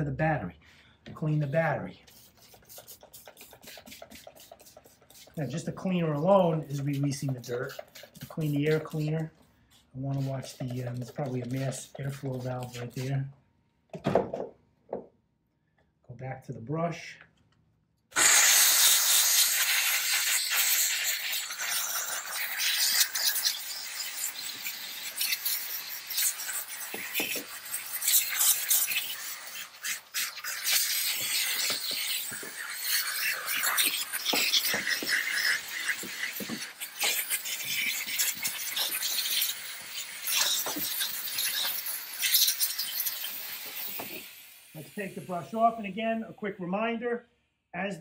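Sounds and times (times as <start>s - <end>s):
brush scrubbing and scraping: 1.3s - 13.2s
steam cleaner hissing: 18.2s - 46.0s.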